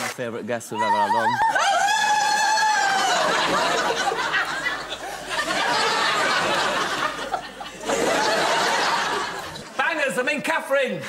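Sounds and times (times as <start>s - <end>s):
audience laughing: 2.8s - 9.8s.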